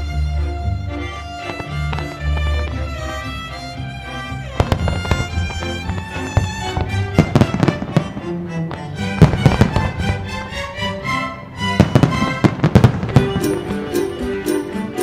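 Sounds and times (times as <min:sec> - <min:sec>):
music soundtrack: 0:00.0 - 0:15.0
fireworks bursting: 0:01.4 - 0:03.3, 0:04.5 - 0:10.9, 0:11.6 - 0:15.0.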